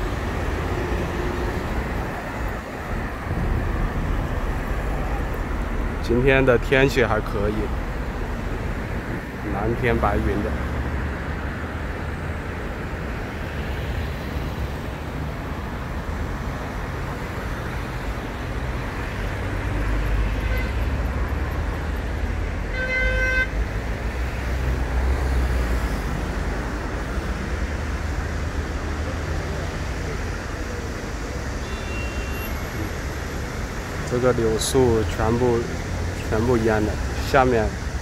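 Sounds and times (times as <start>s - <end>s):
road traffic rumbling: 0.0s - 38.0s
vehicle horn toot: 20.3s - 20.8s, 22.7s - 23.5s, 31.6s - 32.6s.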